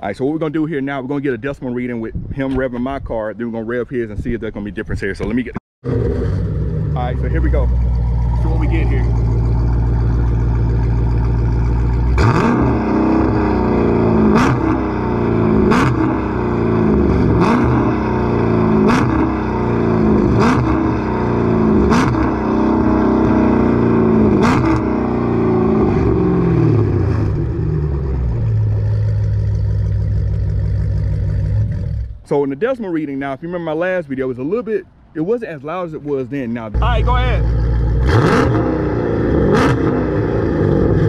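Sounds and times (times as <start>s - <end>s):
car engine revving: 5.8s - 32.3s, 36.8s - 41.0s.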